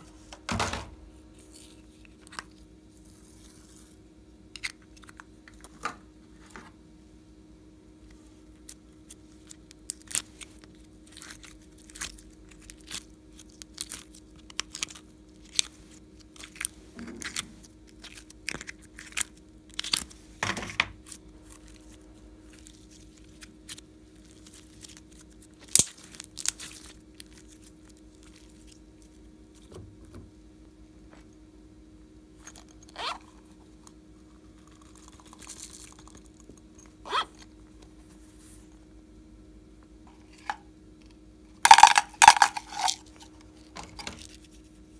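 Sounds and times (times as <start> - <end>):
slime clicks and crackles: 22.5 - 28.8
plastic containers handled: 41.7 - 44.3.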